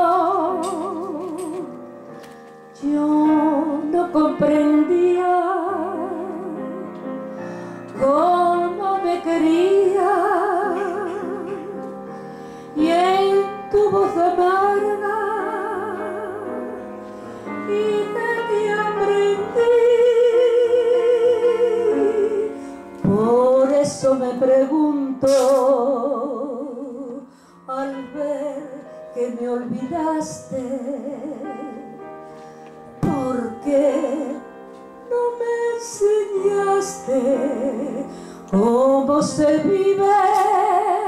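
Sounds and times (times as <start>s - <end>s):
grand piano: 0.0s - 41.0s
woman singing operatically: 33.0s - 34.4s.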